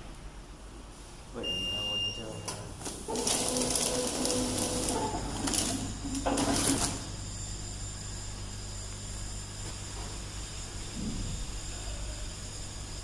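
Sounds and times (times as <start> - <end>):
bagging machine motor hum: 2.4 - 13.0
machine whirring: 2.5 - 9.1.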